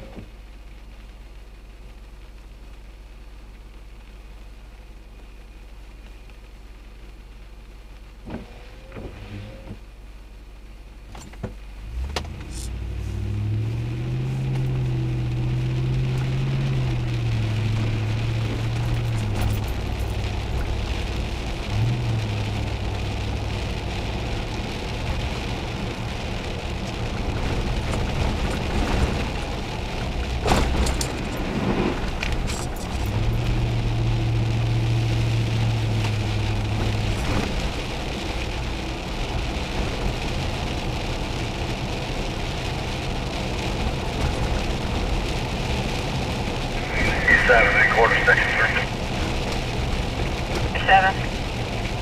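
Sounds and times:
car engine humming: 0.0s - 52.0s
tyres hissing on wet pavement: 11.6s - 52.0s.

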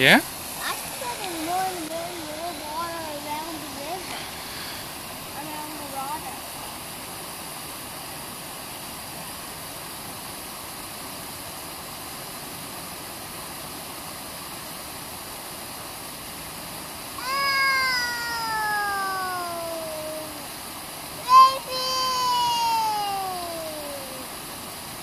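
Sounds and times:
water rushing over waterfall: 0.0s - 25.0s
child vocal sound falling in pitch: 17.2s - 20.5s, 21.2s - 24.3s.

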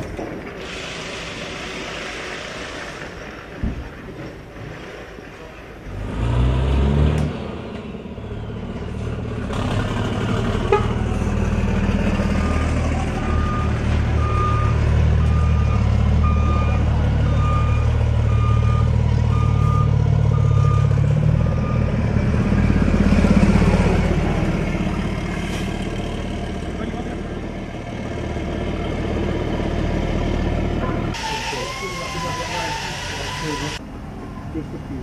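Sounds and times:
truck engine rumbling: 0.0s - 35.0s
reversing alarm beeping: 12.3s - 22.0s, 31.2s - 33.8s.

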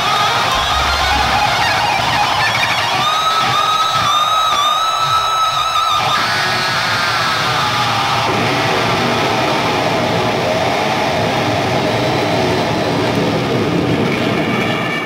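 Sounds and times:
wavering guitar tones: 0.5s - 4.7s
crashing cymbals: 0.5s - 5.6s
distorted electric guitar chord: 0.6s - 3.5s.

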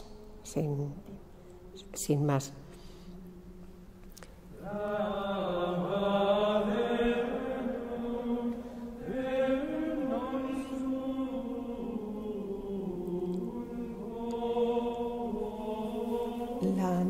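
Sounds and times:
voices singing a slow chant: 0.0s - 1.0s, 4.5s - 17.0s.

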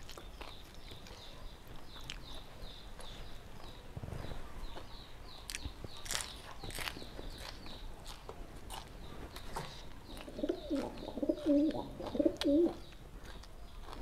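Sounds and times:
person chewing raw vegetables: 0.0s - 3.4s, 5.5s - 14.0s
dove cooing: 10.2s - 12.8s.

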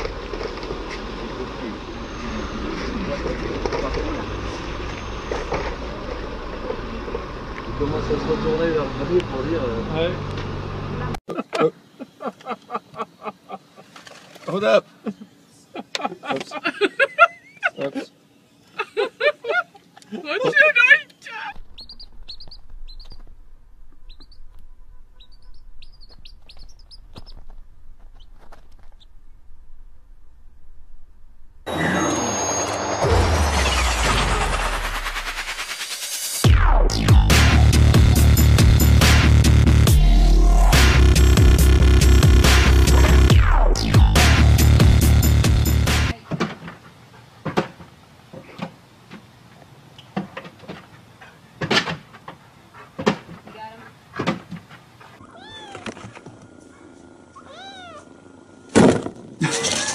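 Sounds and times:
chick peeping: 21.5s - 23.3s, 23.9s - 27.4s.

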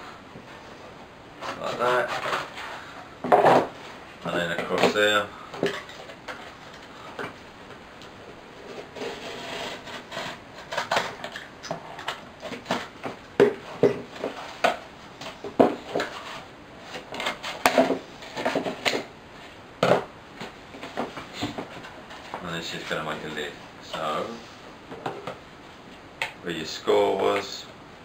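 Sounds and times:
scissors cutting cardboard: 8.9s - 11.4s.

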